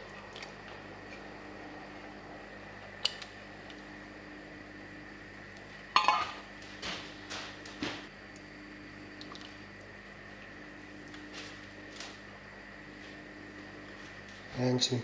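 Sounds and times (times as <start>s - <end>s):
metal bowl clattering: 6.0s - 6.4s
metal bowl clinking on pot: 6.0s - 6.4s.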